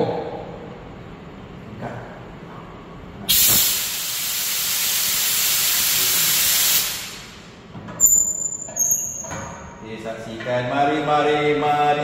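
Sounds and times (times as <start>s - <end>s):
steam hissing: 3.3s - 7.5s.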